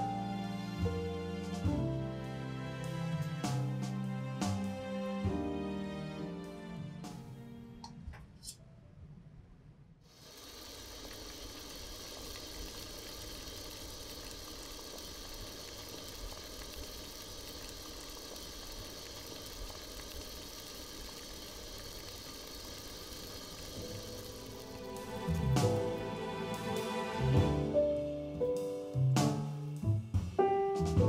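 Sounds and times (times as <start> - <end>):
water boiling and steaming: 10.1 - 27.8.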